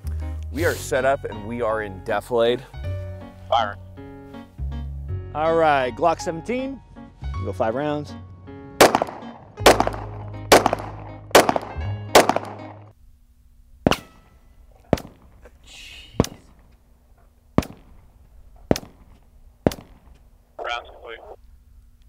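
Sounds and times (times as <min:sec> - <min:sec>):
background music: 0:00.0 - 0:13.0
faint sharp bullet cracks: 0:08.8 - 0:12.7, 0:13.9 - 0:15.4, 0:16.2 - 0:16.7, 0:17.6 - 0:18.1, 0:18.7 - 0:20.3
pistol shots close by: 0:08.8 - 0:12.7, 0:14.9 - 0:15.4, 0:17.6 - 0:18.0, 0:18.7 - 0:20.1.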